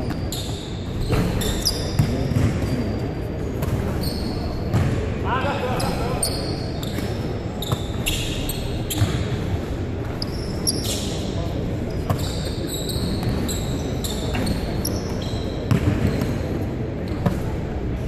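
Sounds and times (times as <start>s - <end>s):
sneakers squeaking: 0.0s - 17.8s
basketball bouncing on wooden floor: 1.9s - 2.7s.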